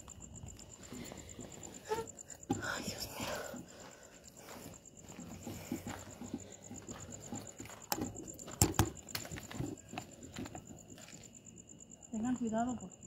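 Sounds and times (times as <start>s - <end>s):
footsteps on dirt and weeds: 2.6s - 11.3s.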